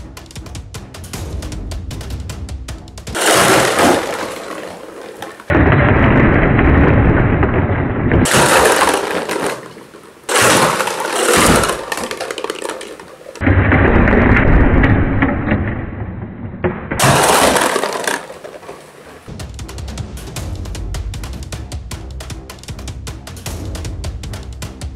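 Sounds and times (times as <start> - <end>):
plastic buckets crashing and clattering: 3.0 - 15.7, 16.6 - 20.0.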